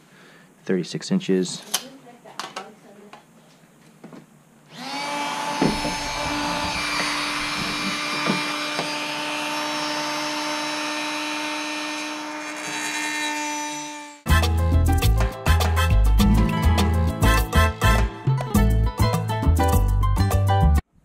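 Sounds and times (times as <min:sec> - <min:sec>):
power tool whine: 0:04.7 - 0:14.3
metal scraping: 0:16.1 - 0:18.1.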